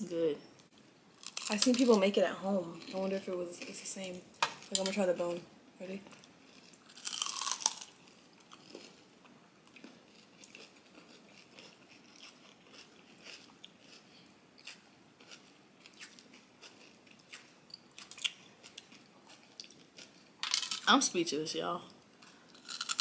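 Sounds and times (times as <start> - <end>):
chewing with small crunches: 6.1 - 20.4, 21.9 - 23.0
crunchy bite into ice cream bar: 6.8 - 8.9.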